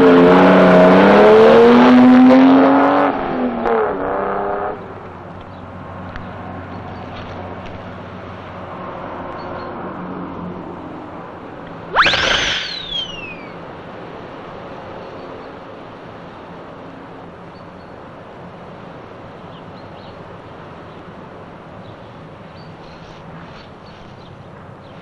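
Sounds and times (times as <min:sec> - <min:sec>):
toy ray gun zap: 0:11.9 - 0:13.6.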